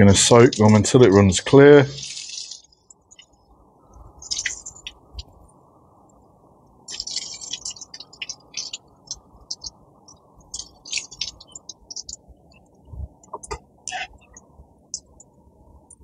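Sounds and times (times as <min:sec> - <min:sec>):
water spattering and dripping: 0:01.9 - 0:03.3, 0:04.2 - 0:05.3, 0:06.9 - 0:09.8, 0:10.5 - 0:12.2.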